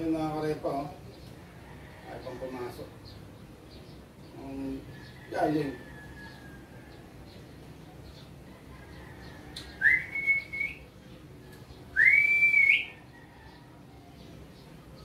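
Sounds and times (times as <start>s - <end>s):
person whistling: 9.8s - 10.8s, 12.0s - 12.9s.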